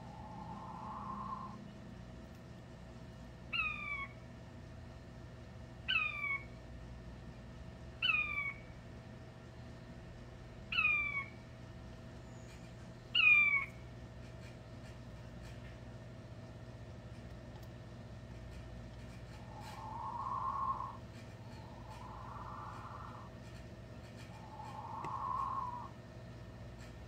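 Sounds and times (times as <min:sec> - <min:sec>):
quail crowing: 0:00.0 - 0:01.6, 0:13.2 - 0:13.7, 0:19.3 - 0:26.0.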